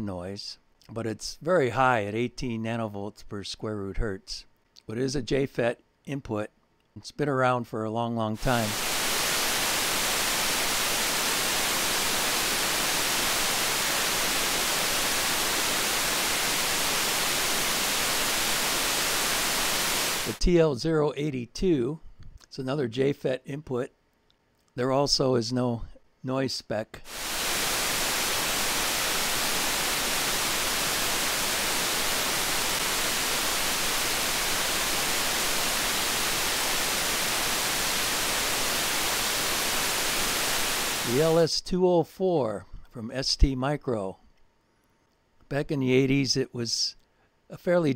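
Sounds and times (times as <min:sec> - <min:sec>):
amplifier noise hiss: 0:08.3 - 0:21.8, 0:26.5 - 0:41.7.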